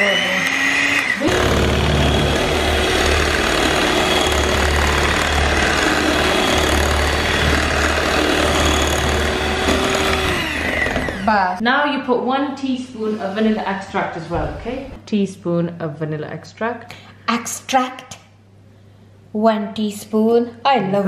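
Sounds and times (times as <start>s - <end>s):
electric hand mixer running: 0.0s - 11.6s.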